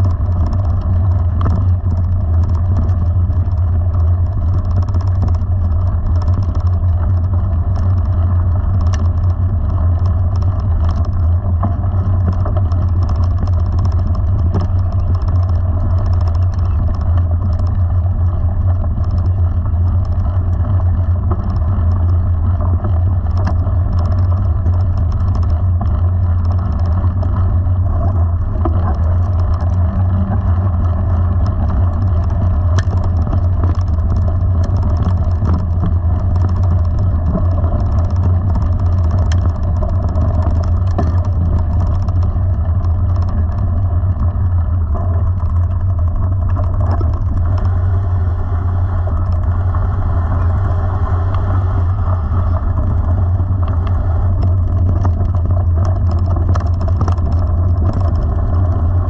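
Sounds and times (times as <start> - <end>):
wind rumble on microphone: 0.0 - 59.0.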